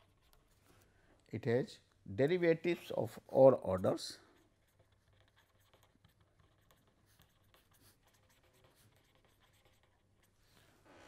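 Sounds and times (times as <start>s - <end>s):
pen scratching on paper: 4.3s - 10.6s.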